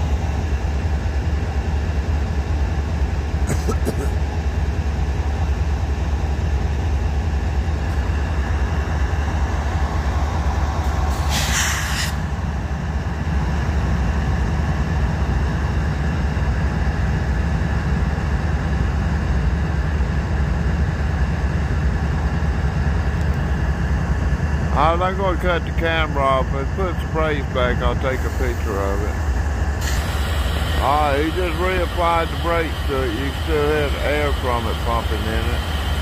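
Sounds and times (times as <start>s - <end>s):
diesel locomotive idling: 0.0s - 36.0s
brief hiss: 11.1s - 12.2s.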